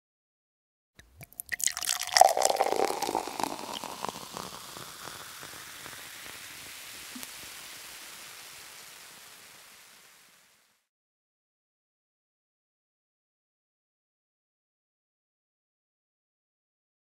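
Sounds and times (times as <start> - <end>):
steady hiss: 2.1 - 10.9.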